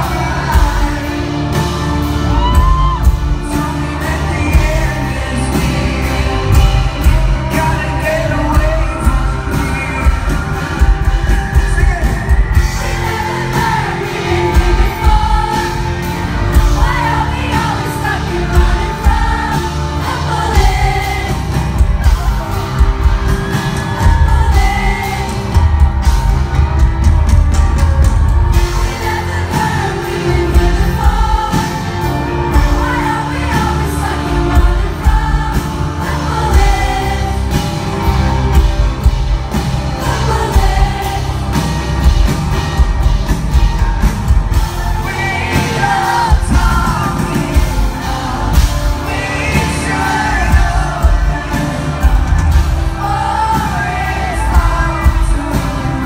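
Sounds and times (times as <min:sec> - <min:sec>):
man singing: 0:00.0 - 0:25.7, 0:44.6 - 0:56.0
live band playing: 0:00.0 - 0:56.0.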